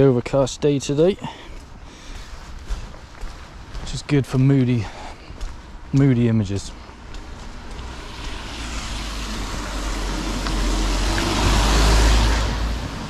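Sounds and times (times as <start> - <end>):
car engine rumble: 5.6 - 13.0
tyres hissing on wet road: 7.8 - 13.0.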